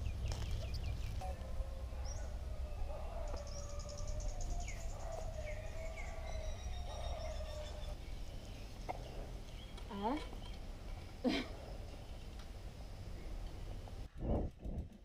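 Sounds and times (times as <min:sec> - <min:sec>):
birds chirping: 0:00.0 - 0:14.0
low wind rumble on microphone: 0:07.8 - 0:15.0.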